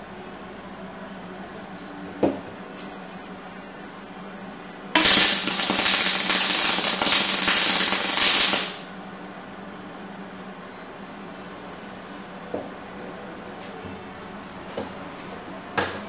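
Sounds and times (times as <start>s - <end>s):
welding arc crackling: 5.0s - 8.9s.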